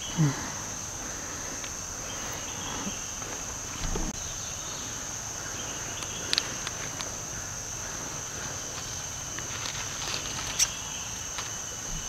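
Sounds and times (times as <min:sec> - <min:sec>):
insect chorus high-pitched buzz: 0:00.0 - 0:12.0.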